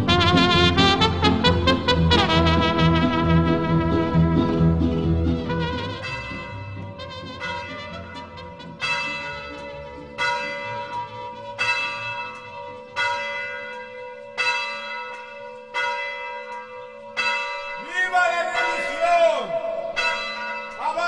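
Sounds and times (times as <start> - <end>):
church bell tolling: 5.9 - 21.0.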